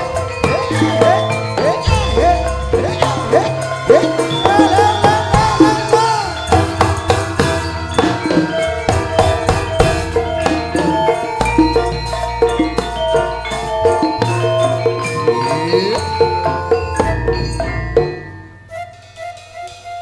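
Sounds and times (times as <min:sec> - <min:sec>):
hand drum strokes bending in pitch: 0:00.0 - 0:20.0
metallophones struck with mallets: 0:00.0 - 0:20.0
deep sustained low notes: 0:01.8 - 0:05.8.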